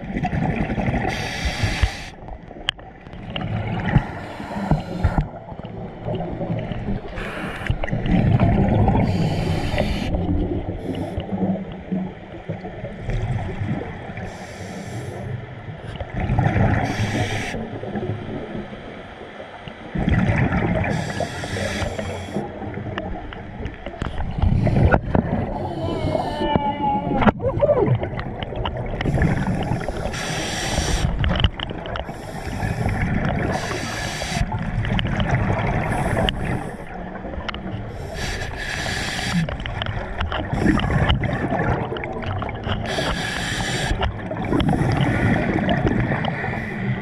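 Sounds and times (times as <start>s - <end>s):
bubbling and gurgling: 0.0s - 47.0s
scuba diver hissing breaths: 1.1s - 2.2s, 9.0s - 10.2s, 14.3s - 15.3s, 16.8s - 17.6s, 20.9s - 22.5s, 29.1s - 31.2s, 32.1s - 34.6s, 37.9s - 39.6s, 42.9s - 45.3s.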